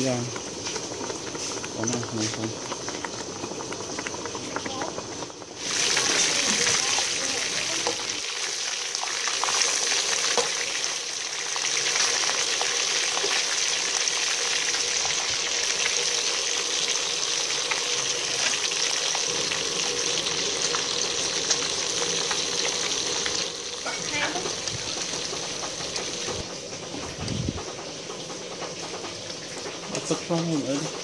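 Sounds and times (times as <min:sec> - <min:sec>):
fish frying in a wok: 0:00.0 - 0:31.0.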